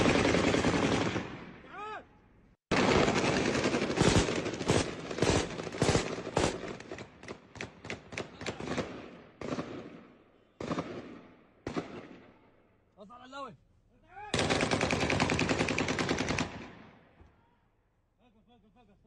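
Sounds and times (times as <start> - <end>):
gunshots with echo: 2.7 - 12.4.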